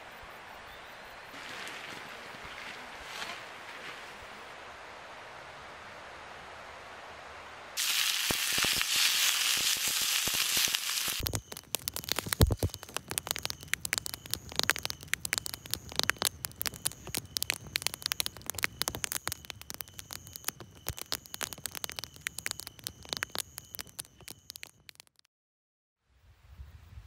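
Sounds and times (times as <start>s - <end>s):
hiss: 7.8s - 11.2s
crackling and clicking: 7.8s - 25.3s.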